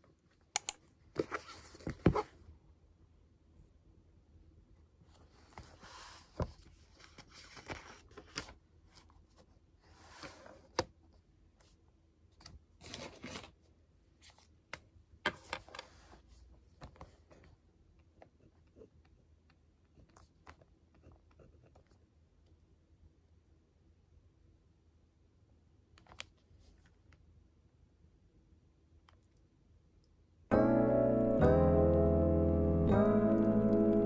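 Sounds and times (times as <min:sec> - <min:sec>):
notebook pages rustling: 0:01.1 - 0:02.4, 0:05.1 - 0:10.8.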